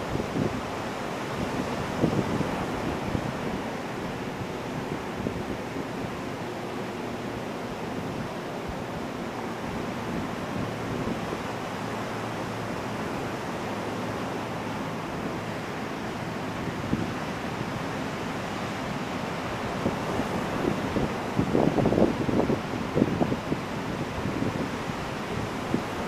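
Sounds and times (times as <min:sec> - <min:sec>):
ocean waves washing onto beach: 0:00.0 - 0:26.0.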